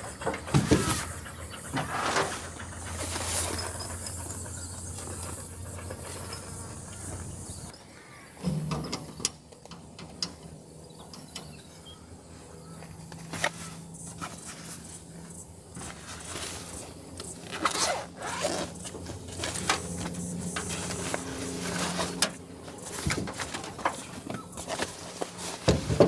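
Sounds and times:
camping gear clicks and scrapes: 1.8s - 7.8s, 12.8s - 26.0s.

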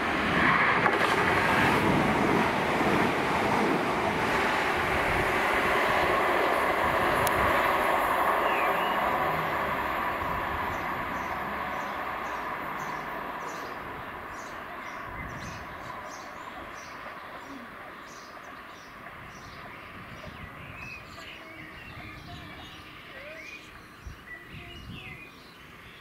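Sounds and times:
electric train running away: 0.0s - 24.4s
birds chirping: 7.5s - 26.0s.

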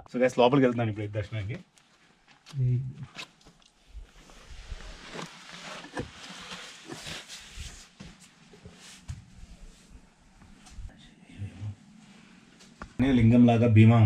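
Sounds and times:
clothing scraping against rock: 4.1s - 8.0s.

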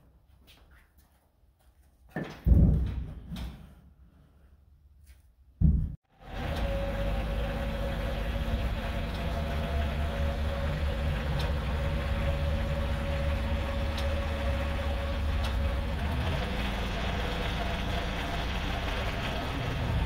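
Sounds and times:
tractor engine running: 6.2s - 20.0s.

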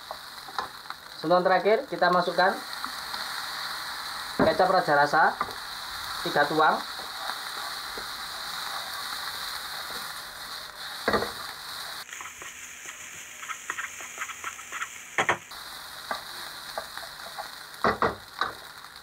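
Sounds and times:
rice sizzling in a wok: 0.0s - 19.0s
spatula scraping a wok: 6.9s - 15.4s.

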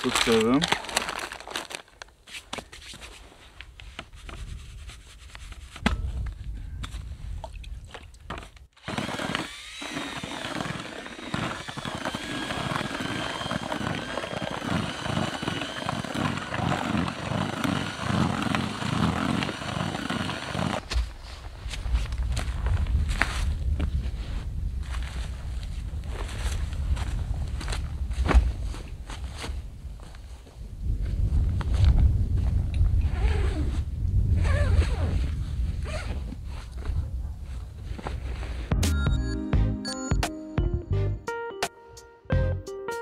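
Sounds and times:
rummaging in tackle bag: 0.0s - 3.0s.

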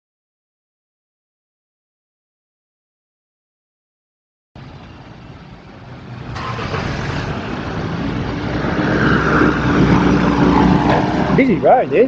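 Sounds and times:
vehicle engine approaching: 4.6s - 12.0s.

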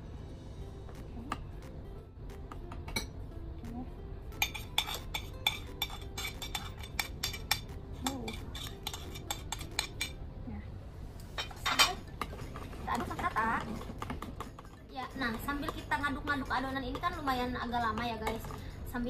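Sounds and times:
faint background music: 0.0s - 19.0s
metal spoon scraping ceramic plate: 4.4s - 10.2s.

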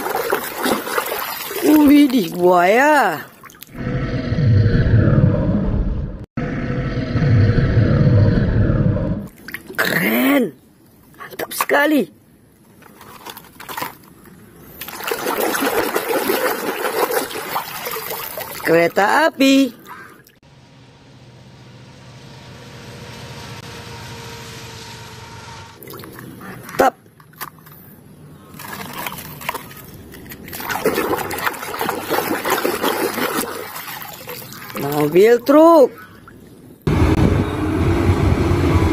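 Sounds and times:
water splashing and trickling: 0.0s - 3.8s, 9.3s - 11.8s, 12.6s - 20.5s, 25.8s - 36.9s.

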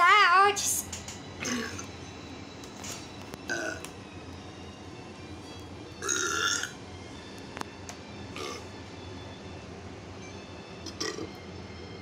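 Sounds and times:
person burping: 1.4s - 1.9s, 3.5s - 3.8s, 6.0s - 6.7s, 10.9s - 11.3s.

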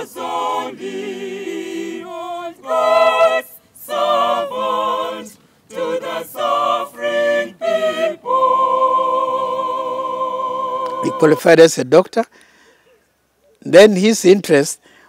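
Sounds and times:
choir singing: 0.0s - 11.6s.

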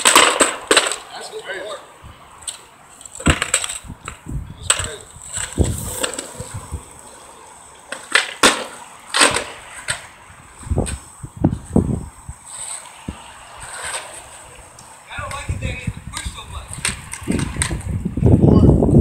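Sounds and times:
skateboard rolling over asphalt: 0.0s - 1.2s, 2.4s - 19.0s
skateboard clacking: 0.0s - 1.8s, 2.4s - 10.2s, 12.5s - 18.0s.

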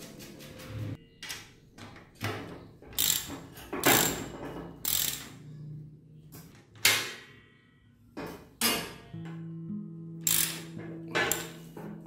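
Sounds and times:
ratchet wrench clicking: 3.0s - 4.2s, 4.8s - 5.3s, 10.2s - 10.7s.

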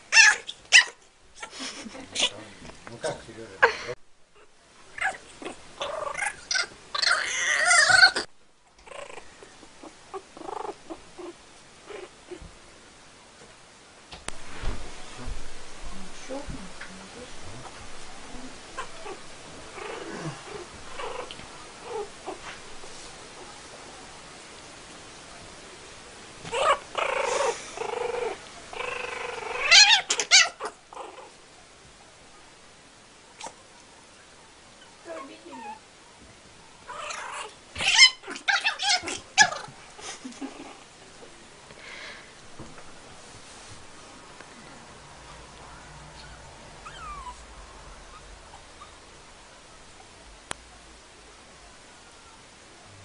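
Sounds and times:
animal squalling cry: 0.1s - 1.0s, 5.0s - 8.3s, 26.5s - 31.1s, 36.9s - 39.7s
growls and scuffles: 17.4s - 23.8s, 26.4s - 31.3s
kitten yowling: 29.5s - 30.7s, 36.9s - 39.7s.

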